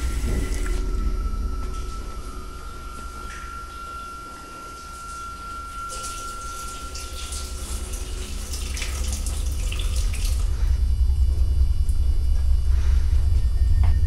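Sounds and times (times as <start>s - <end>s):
shower water running: 0.0s - 10.9s
deep low drone: 0.0s - 14.0s.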